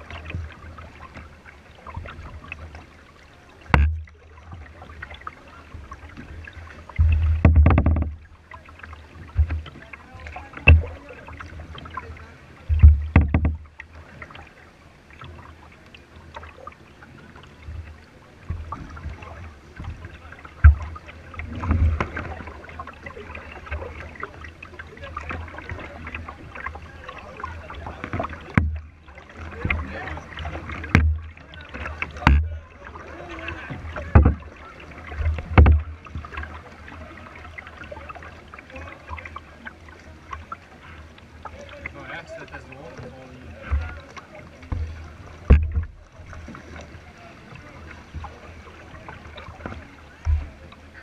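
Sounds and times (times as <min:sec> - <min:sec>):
water splashing against hull: 0:00.0 - 0:51.0
dull thumps: 0:03.7 - 0:04.1, 0:07.0 - 0:08.3, 0:12.7 - 0:13.7, 0:32.2 - 0:32.6, 0:44.7 - 0:46.0.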